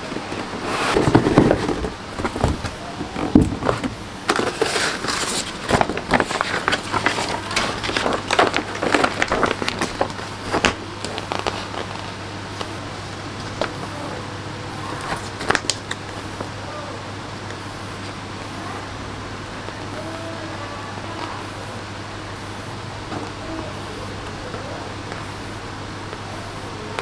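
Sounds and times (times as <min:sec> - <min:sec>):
paper sheets rustling and crinkling: 0:00.0 - 0:16.5.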